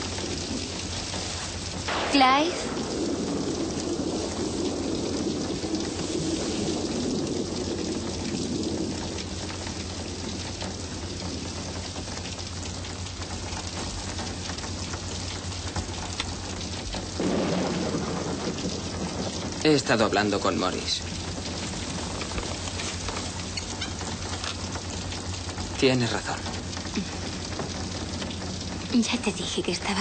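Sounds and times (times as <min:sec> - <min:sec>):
heavy rain falling: 0:00.0 - 0:30.0
low rumble of thunder: 0:00.0 - 0:30.0.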